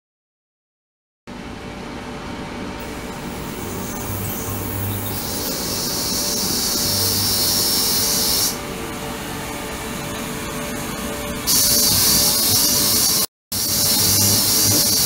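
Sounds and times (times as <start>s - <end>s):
bright high hiss: 2.8s - 8.6s, 11.5s - 15.0s
ultrasonic cleaner hissing: 2.8s - 8.6s, 11.5s - 15.0s.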